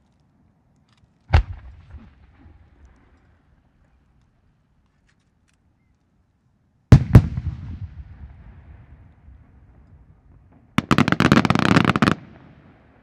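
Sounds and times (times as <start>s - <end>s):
rapid crackling firework volley: 10.8s - 12.8s.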